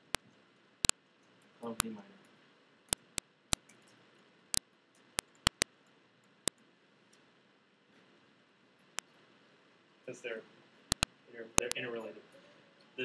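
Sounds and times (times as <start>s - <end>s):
stylus tapping on a tablet: 2.9s - 3.2s, 5.2s - 5.7s, 10.9s - 11.8s.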